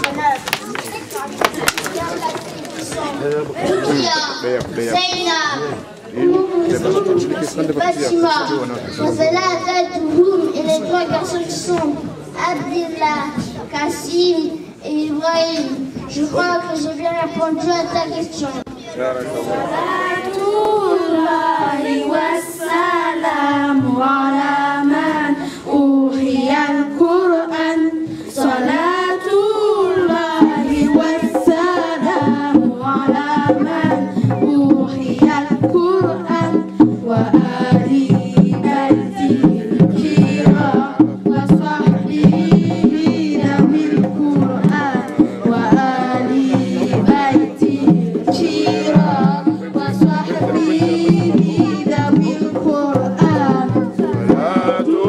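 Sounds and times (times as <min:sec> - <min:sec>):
girls singing together: 0:19.4 - 0:55.0
steady drum beat: 0:27.9 - 0:55.0.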